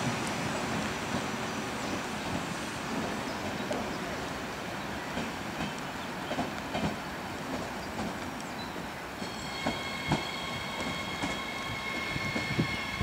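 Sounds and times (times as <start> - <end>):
train wheels rumbling and knocking: 0.0 - 13.0
high-pitched wheel squeal: 9.2 - 13.0.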